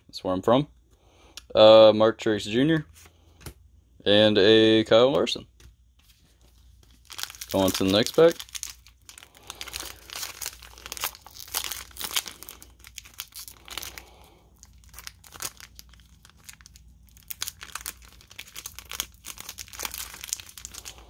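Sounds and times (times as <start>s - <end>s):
wrapper crinkling and tearing: 6.7s - 21.0s.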